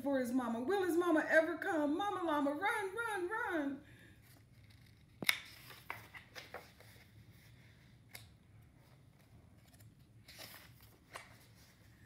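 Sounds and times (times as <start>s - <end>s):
paper rustling and tapping: 5.2s - 7.0s.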